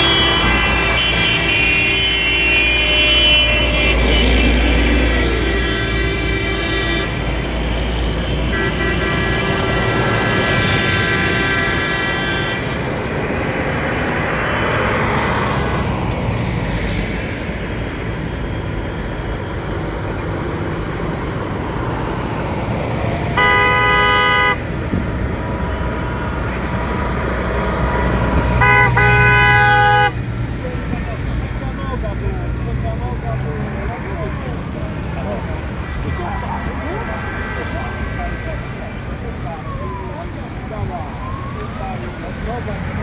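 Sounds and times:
horn blasts: 0:00.0 - 0:07.6, 0:08.3 - 0:13.0, 0:23.3 - 0:24.8, 0:27.9 - 0:30.2
tractor engines driving past: 0:00.0 - 0:43.0.

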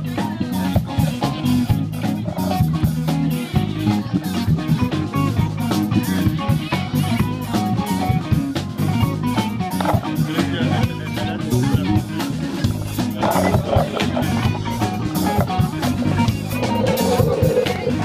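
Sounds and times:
song with guitar and drums: 0:00.0 - 0:18.0.

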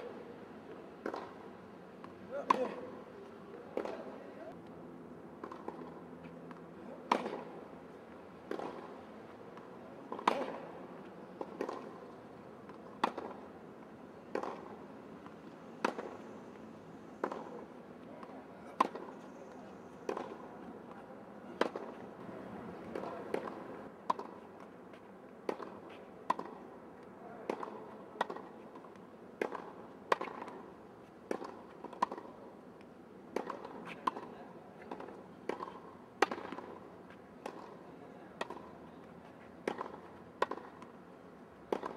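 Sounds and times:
tennis ball hit by racquet: 0:01.0 - 0:01.5, 0:02.1 - 0:02.9, 0:03.7 - 0:04.2, 0:05.4 - 0:07.7, 0:08.4 - 0:10.7, 0:11.4 - 0:13.5, 0:14.3 - 0:14.8, 0:15.8 - 0:16.2, 0:17.2 - 0:20.5, 0:21.5 - 0:22.1, 0:22.8 - 0:24.4, 0:25.4 - 0:26.6, 0:27.4 - 0:30.7, 0:31.3 - 0:32.4, 0:33.3 - 0:37.8, 0:38.4 - 0:38.7, 0:39.6 - 0:41.0, 0:41.7 - 0:41.9.

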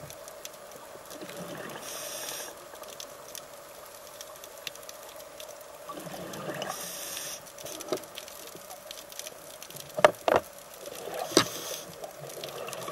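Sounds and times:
faint steady hum: 0:00.0 - 0:12.9
bubbling: 0:01.1 - 0:02.9, 0:05.3 - 0:06.9, 0:07.6 - 0:12.9
regulator hiss underwater: 0:01.4 - 0:02.8, 0:06.1 - 0:08.0, 0:11.0 - 0:12.1.

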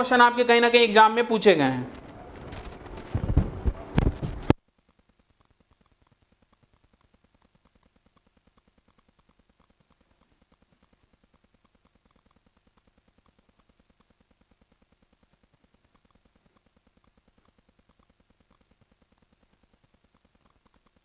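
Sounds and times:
loud knocks: 0:02.1 - 0:04.6
stopwatch ticking: 0:04.0 - 0:21.0.

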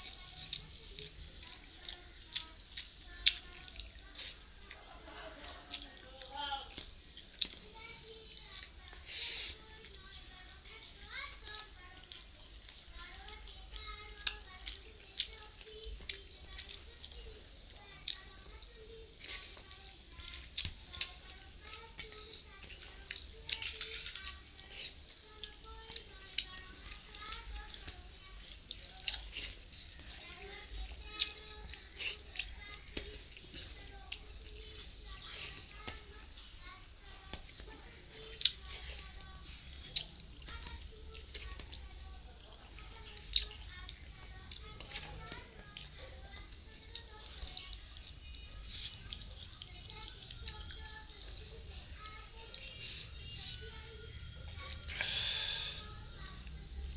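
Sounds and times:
mouth smacking and chewing: 0:01.4 - 0:04.8, 0:38.3 - 0:41.9.

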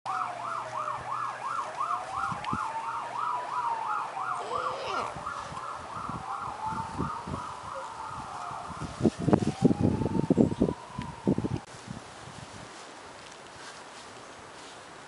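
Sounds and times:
slow wailing siren: 0:00.1 - 0:11.7
yelping siren: 0:00.1 - 0:11.7.

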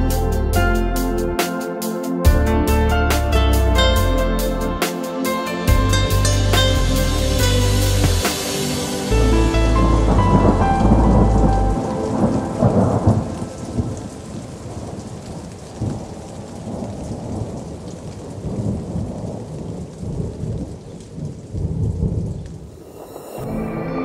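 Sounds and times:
background music: 0:00.0 - 0:14.3, 0:23.0 - 0:24.0
steady rain: 0:00.0 - 0:23.4
thunder rumbling: 0:07.4 - 0:24.0.

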